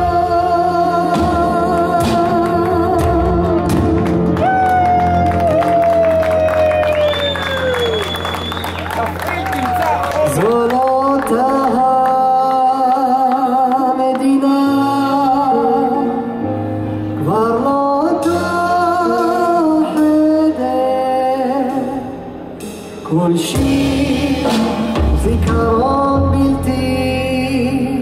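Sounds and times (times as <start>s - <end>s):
live band playing slow song: 0.0s - 28.0s
drums and cymbals: 22.6s - 26.0s.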